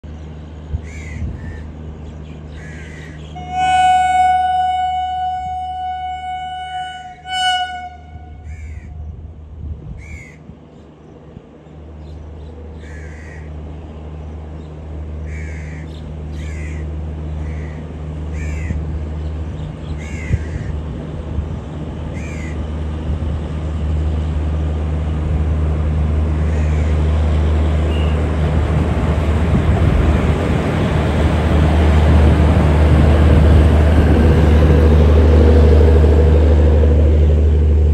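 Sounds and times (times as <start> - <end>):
train rumble: 0.0 - 37.9
train horn blasts: 3.4 - 9.0
crows cawing: 12.8 - 13.5, 18.4 - 18.8, 20.0 - 20.7.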